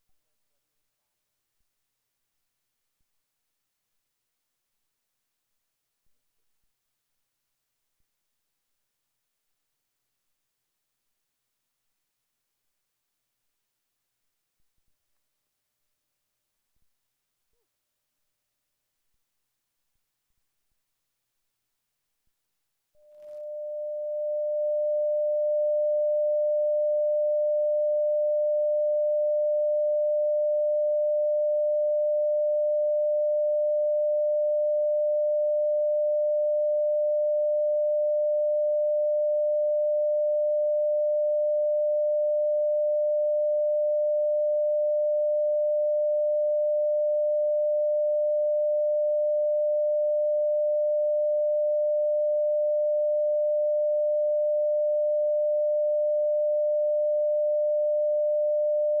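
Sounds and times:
steady pure tone: 23.1 - 31.2.

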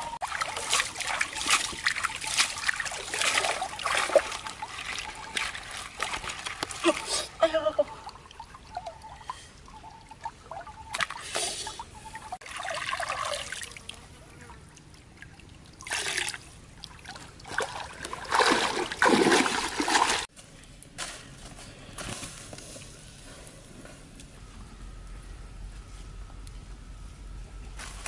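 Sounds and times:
water splashing in clay pot: 0.2 - 13.9, 14.5 - 20.3.

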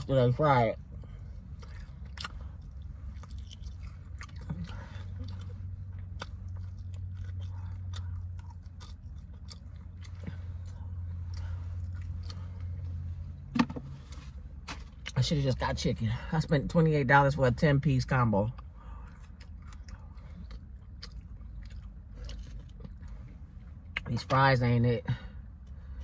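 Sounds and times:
low hum: 0.0 - 16.5
chewing food: 1.4 - 13.0, 18.5 - 24.3.

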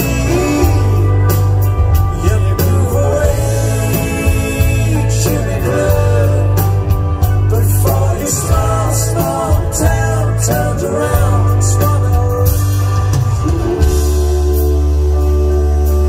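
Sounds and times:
man singing: 0.0 - 16.0
rock band playing loudly: 0.0 - 16.0.

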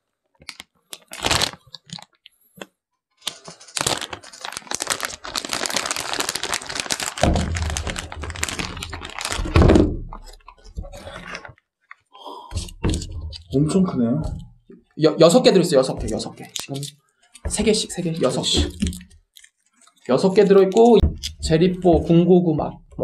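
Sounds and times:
plastic snack bag crinkling: 0.4 - 2.4, 3.2 - 12.0, 15.4 - 21.9.

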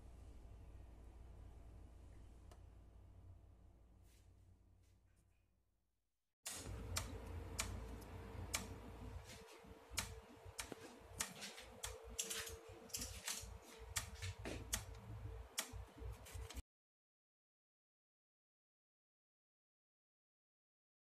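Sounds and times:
steady low hum: 0.0 - 5.2, 6.5 - 16.6
utensils and plate clicking: 10.0 - 14.9.

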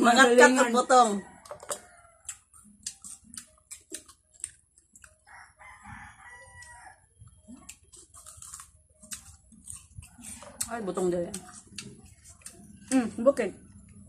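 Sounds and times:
people chewing crisp fruit: 0.0 - 14.0
rooster crowing: 5.2 - 7.1.

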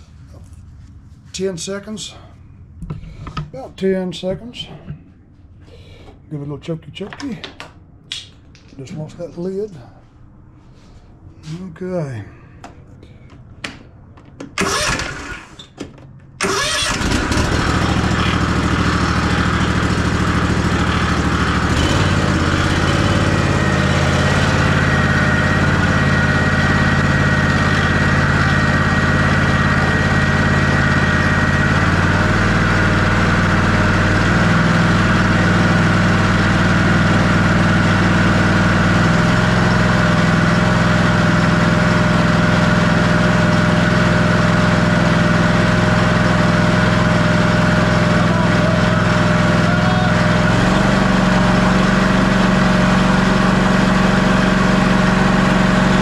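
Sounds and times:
electric starter cranking: 14.5 - 15.8, 16.4 - 33.6
mower engine running: 14.6 - 15.6, 16.4 - 56.0.

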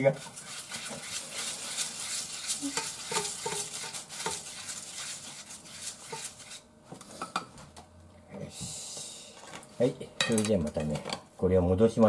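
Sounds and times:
spatula scraping metal frying pan: 0.0 - 6.7.

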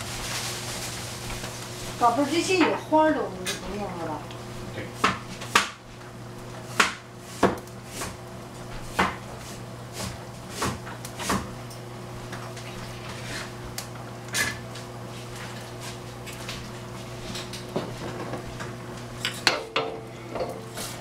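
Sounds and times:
cookware and utensils clinking: 19.2 - 20.8.

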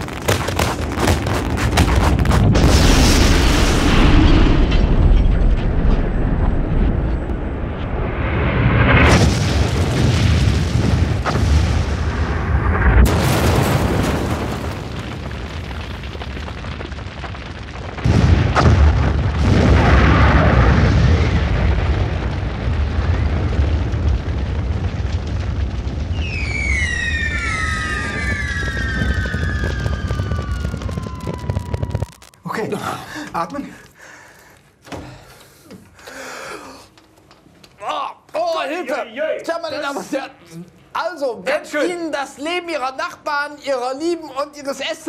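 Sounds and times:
firework sharp bangs: 0.0 - 4.7, 8.9 - 32.4
fireworks crackling and booming: 0.0 - 33.8
falling firework whistles: 26.0 - 32.4.

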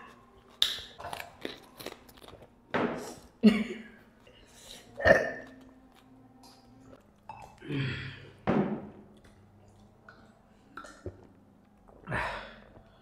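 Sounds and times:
person burping: 5.0 - 5.5
person gulping drink: 10.1 - 11.3.

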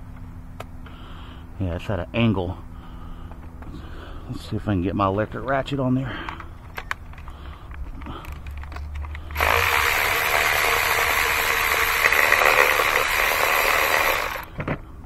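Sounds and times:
cordless electric ratchet running: 9.1 - 14.5.

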